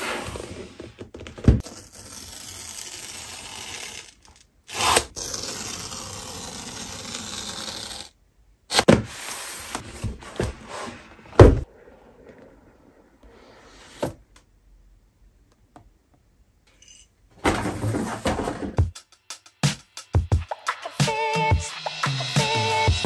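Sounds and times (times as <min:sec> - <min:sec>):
paper strip ripping: 0:01.6 - 0:08.1.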